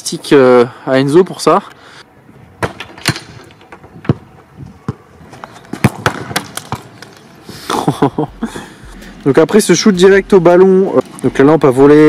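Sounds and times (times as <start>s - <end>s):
flashlight clattering on asphalt: 6.3s - 7.3s.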